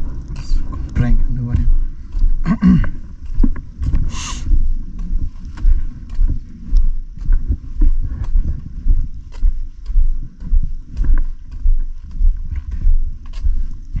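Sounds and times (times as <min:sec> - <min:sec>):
footsteps thudding: 0:00.0 - 0:06.5.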